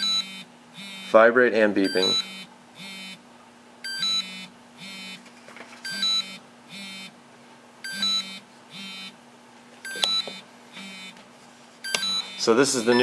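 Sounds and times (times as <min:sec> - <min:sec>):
electronic alarm beeps: 0:00.0 - 0:01.2, 0:01.8 - 0:03.2, 0:03.8 - 0:05.2, 0:05.8 - 0:07.1, 0:07.8 - 0:09.2, 0:09.8 - 0:11.2, 0:11.8 - 0:13.0
vibration motor buzzing: 0:00.0 - 0:01.3, 0:02.0 - 0:03.2, 0:03.8 - 0:05.2, 0:05.9 - 0:07.2, 0:07.8 - 0:09.2, 0:09.9 - 0:11.2.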